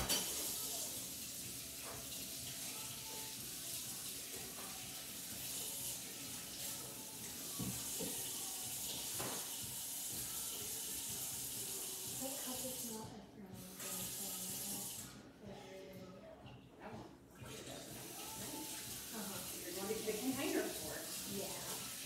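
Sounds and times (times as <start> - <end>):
tap running into sink: 7.5 - 9.6.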